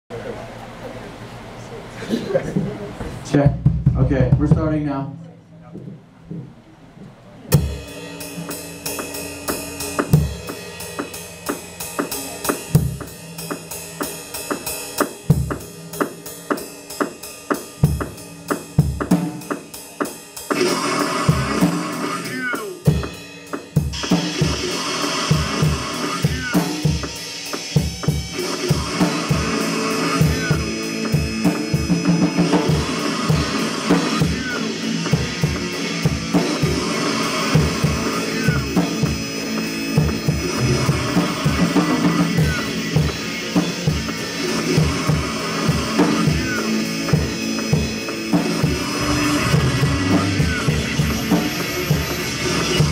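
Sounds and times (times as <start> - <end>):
screamo band playing: 2.8 - 5.0, 7.5 - 52.9
fast cymbal pattern: 7.5 - 52.9
droning guitar noise: 20.5 - 52.9.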